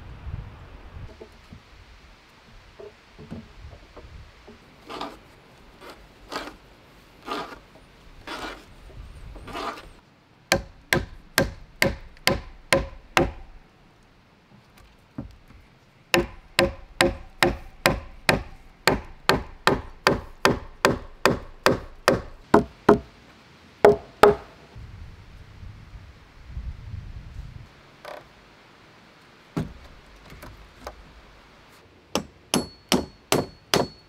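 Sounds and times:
hammer knocking on timber: 0:10.5 - 0:13.5, 0:16.2 - 0:23.1, 0:23.8 - 0:24.4, 0:29.6 - 0:29.8, 0:32.2 - 0:34.0.

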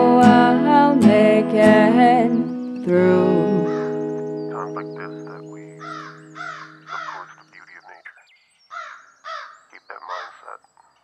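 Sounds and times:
sustained music chord: 0:02.8 - 0:07.2
bird chirps: 0:03.6 - 0:11.0
harsh animal calls: 0:03.6 - 0:11.0.

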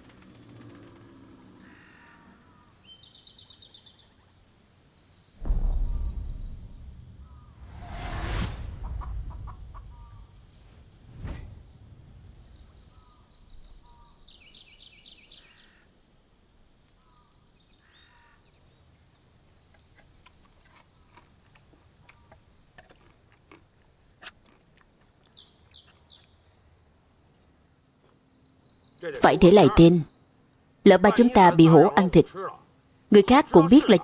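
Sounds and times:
small birds chirping: 0:00.2 - 0:08.1, 0:08.7 - 0:32.2
dull thump: 0:05.4 - 0:12.0.

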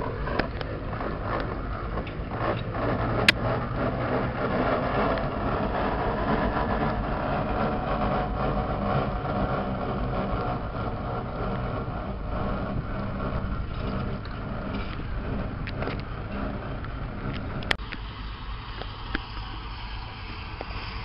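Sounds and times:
gearing clanking and rattling: 0:00.0 - 0:17.8
steam traction engine chuffing: 0:00.0 - 0:21.0.

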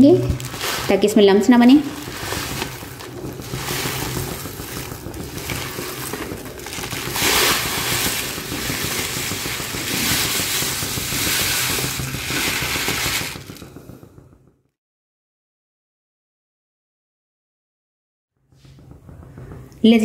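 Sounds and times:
plastic packet crinkling: 0:00.2 - 0:13.8
spatula stirring and scraping pan: 0:00.3 - 0:13.6.

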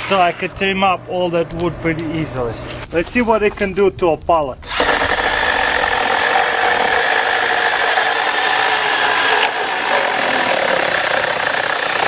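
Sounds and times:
mini chainsaw cutting wood: 0:04.7 - 0:12.0.

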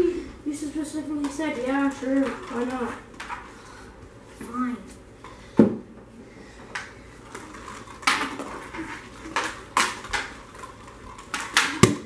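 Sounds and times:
hockey sticks striking: 0:11.2 - 0:12.0.

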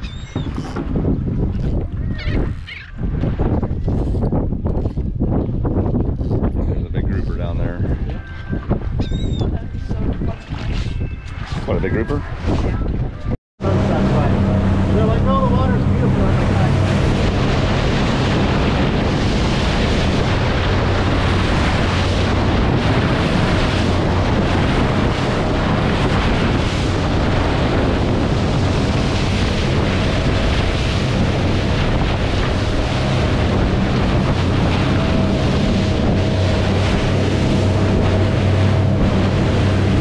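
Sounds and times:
wind buffeting on microphone: 0:00.0 - 0:40.0
boat engine drone: 0:13.6 - 0:40.0.

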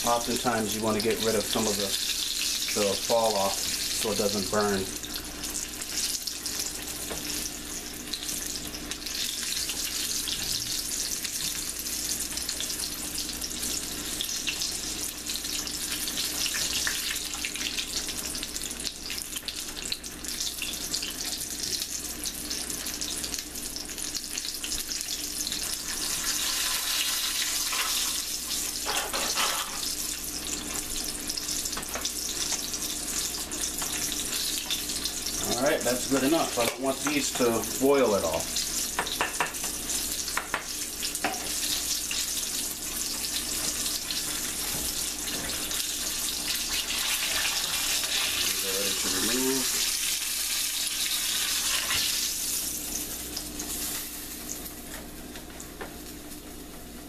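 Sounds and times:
deep-frying crackling sizzle: 0:00.0 - 0:57.0.

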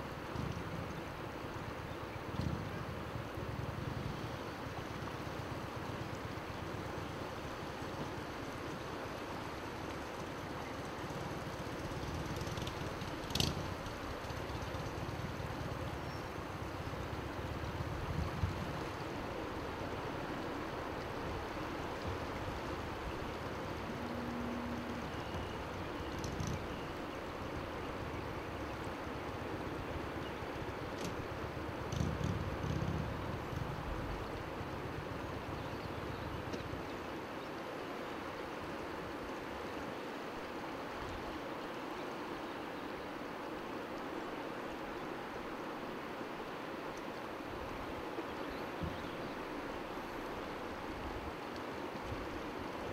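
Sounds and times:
wind on microphone: 0:00.1 - 0:01.2, 0:02.2 - 0:06.1, 0:10.9 - 0:19.4, 0:30.6 - 0:36.9
river rushing: 0:04.4 - 0:36.1, 0:36.8 - 0:52.9.

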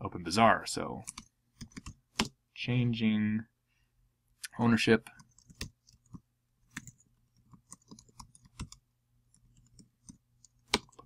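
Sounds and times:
keyboard typing clicks: 0:01.0 - 0:02.4, 0:05.2 - 0:08.8, 0:09.5 - 0:11.0.

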